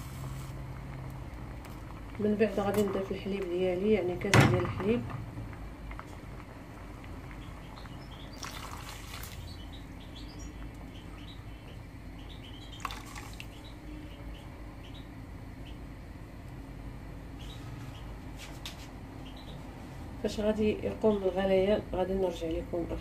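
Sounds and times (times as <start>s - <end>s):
pot simmering: 0.0s - 14.0s
milk splashing into a pot: 8.3s - 9.5s, 12.8s - 13.5s.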